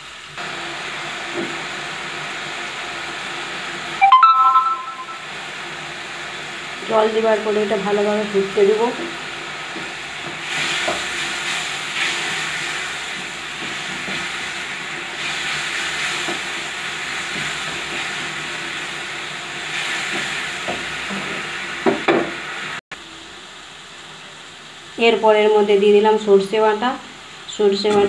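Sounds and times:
gravy hissing and bubbling: 7.5 - 22.8.

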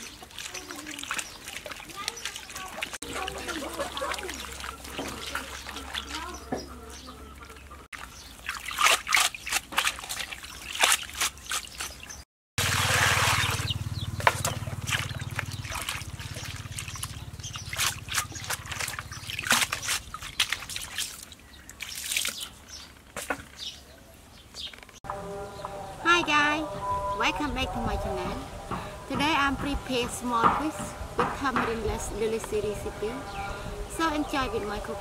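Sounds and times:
water splashing and sloshing: 0.0 - 25.0.

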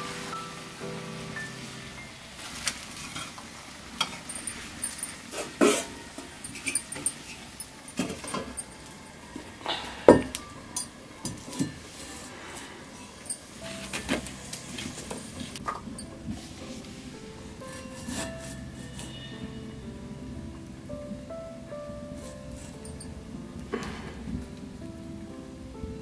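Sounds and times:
metal cookware knocking and clinking: 4.0 - 9.2.

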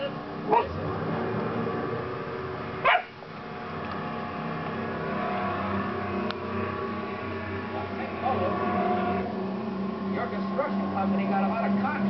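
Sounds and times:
background hum: 0.0 - 12.0
puppy barking: 0.5 - 0.8, 2.8 - 3.2.

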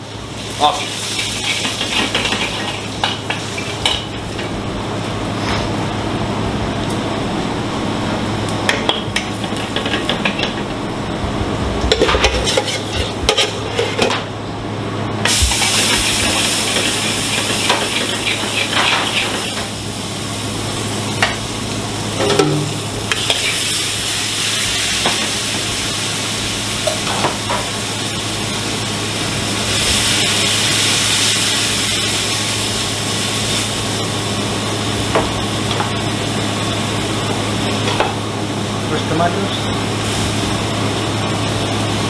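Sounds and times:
steady low hum: 0.0 - 29.9
food sizzling in pans: 0.1 - 4.6, 8.7 - 10.7, 11.9 - 14.1, 15.2 - 38.4, 39.8 - 42.0
utensil knocking against pans: 8.7 - 10.7, 22.2 - 22.8.

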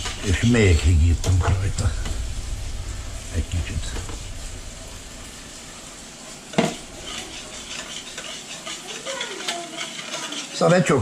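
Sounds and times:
whisk scraping a bowl: 0.0 - 0.6, 5.4 - 11.0.

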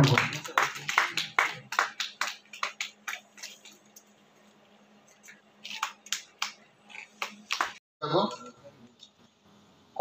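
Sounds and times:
audience hand claps: 0.0 - 3.7, 5.8 - 7.8.

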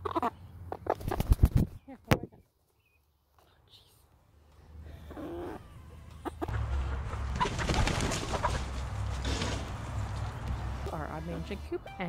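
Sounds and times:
chickens clucking: 0.0 - 1.7, 4.8 - 11.7.

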